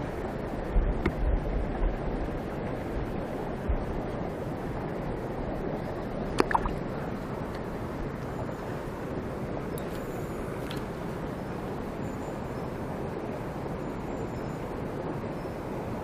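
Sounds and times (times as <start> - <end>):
wind thumps on microphone: 0.7 - 2.3, 6.3 - 7.1
stream water rushing: 1.4 - 16.0.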